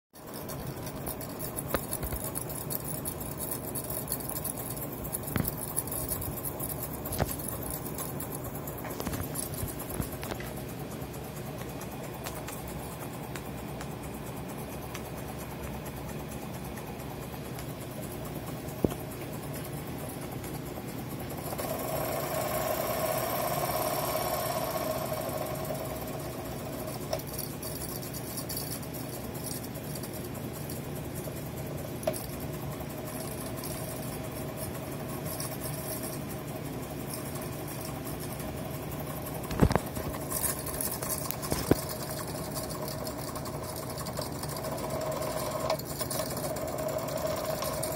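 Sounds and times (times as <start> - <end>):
toy steam engine clattering: 0.2 - 47.9
sharp clicks: 0.4 - 20.7.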